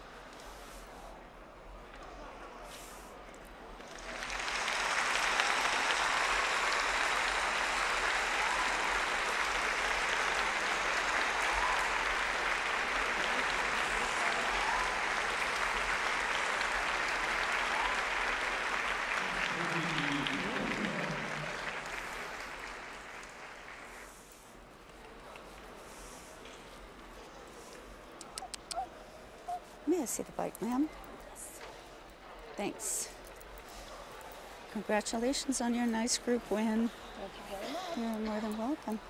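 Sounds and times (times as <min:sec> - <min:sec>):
crowd applause: 0:03.8 - 0:24.1.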